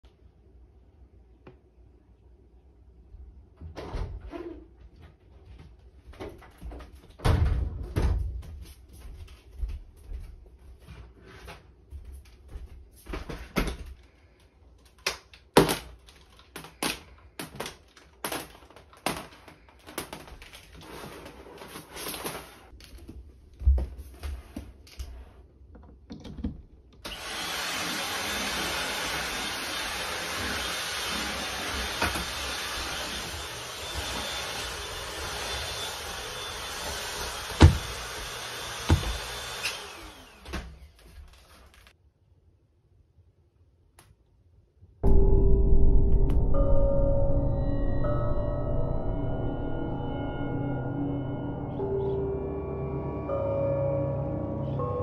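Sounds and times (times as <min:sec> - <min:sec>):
vacuum cleaner running: 0:27.0 - 0:41.6, 0:49.2 - 0:55.0.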